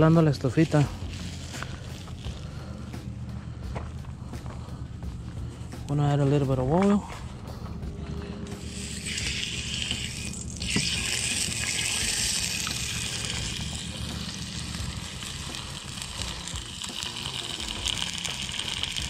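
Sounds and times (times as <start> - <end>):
meat sizzling in hot oil: 0.4 - 2.4, 8.6 - 19.0.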